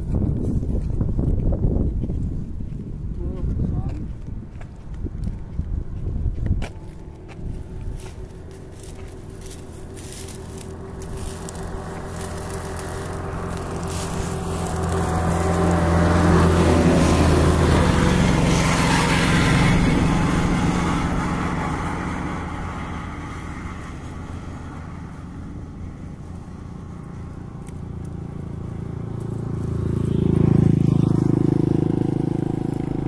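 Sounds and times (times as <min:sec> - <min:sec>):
motor vehicle passing by: 0:00.0 - 0:33.0.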